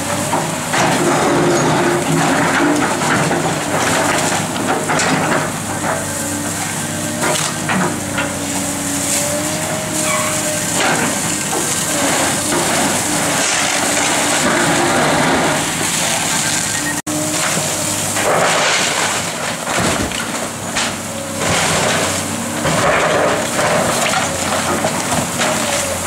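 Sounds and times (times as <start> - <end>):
excavator engine and hydraulics: 0.0 - 26.0
wood and debris crunching: 0.0 - 26.0
hose spraying water: 3.5 - 19.6.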